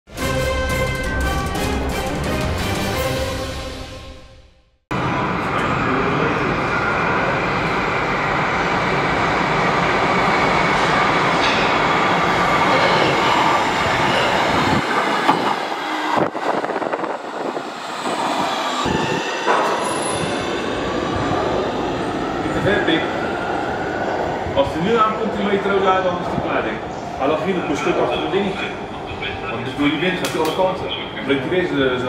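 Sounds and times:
rising whine: 4.9s - 24.6s
metro train rumbling: 4.9s - 32.0s.

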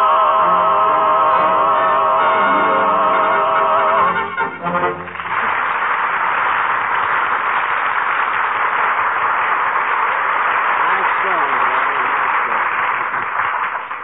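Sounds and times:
music: 0.0s - 5.6s
audience applauding: 4.0s - 14.0s.

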